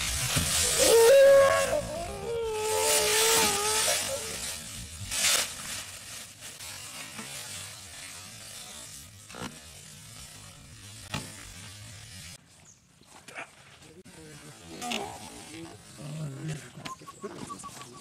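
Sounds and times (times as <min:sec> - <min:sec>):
dry leaves crunching and rustling: 0:00.0 - 0:12.7
wavering cry: 0:00.6 - 0:04.6.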